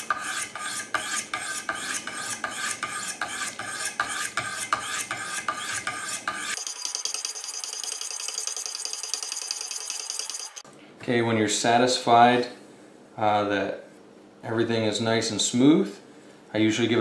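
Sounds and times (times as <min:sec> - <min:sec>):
sharpening stones scraping blade: 0:00.0 - 0:10.6.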